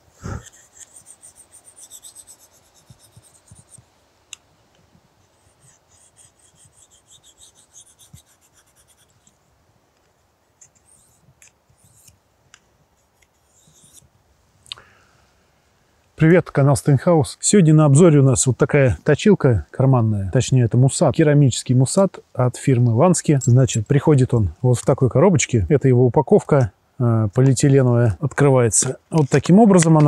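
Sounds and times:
knife scraping on ceramic hone: 0.4s - 3.8s, 13.4s - 14.0s.

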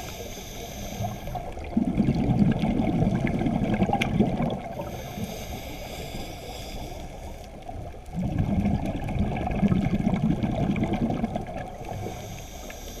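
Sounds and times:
diver breathing through regulator: 0.0s - 1.7s, 4.8s - 7.7s, 11.8s - 13.0s
bubbles gurgling underwater: 1.3s - 5.0s, 7.6s - 12.1s.

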